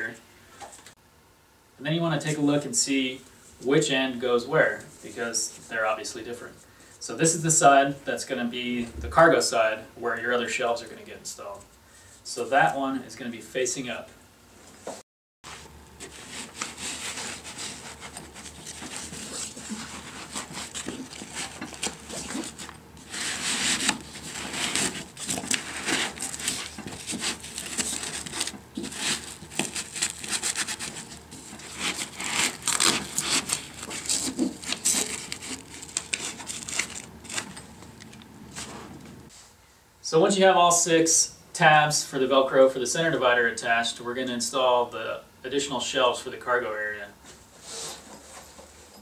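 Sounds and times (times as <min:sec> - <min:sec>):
nylon fabric rustling: 0:15.5 - 0:37.6
velcro rasping: 0:16.0 - 0:37.6.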